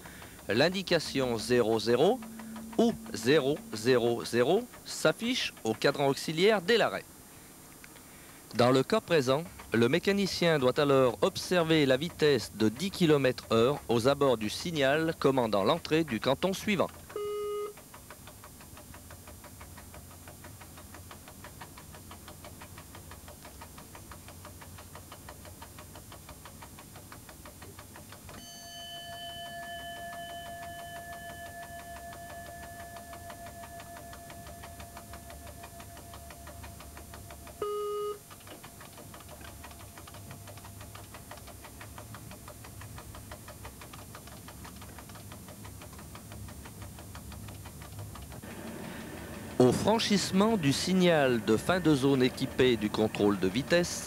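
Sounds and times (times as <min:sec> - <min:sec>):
train rumbling: 0:00.0 - 0:06.0
regular clicking of wheels: 0:00.0 - 0:54.0
ringing tone: 0:00.5 - 0:04.7, 0:28.4 - 0:38.2
short electronic beep: 0:01.0 - 0:04.4, 0:17.2 - 0:17.7, 0:37.6 - 0:38.2.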